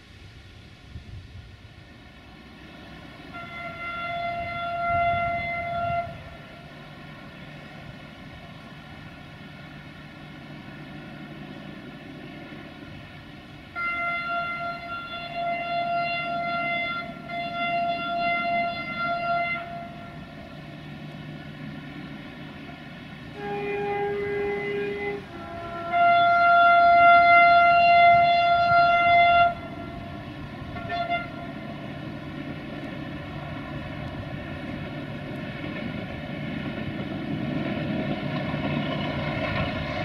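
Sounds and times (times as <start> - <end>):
low diesel drone: 0.0 - 40.0
locomotive horn blasts: 3.2 - 7.4, 12.9 - 21.5, 23.2 - 34.3.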